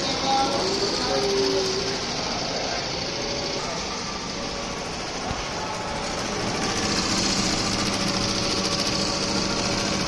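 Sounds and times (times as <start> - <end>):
sewing machine stitching: 5.4 - 10.0.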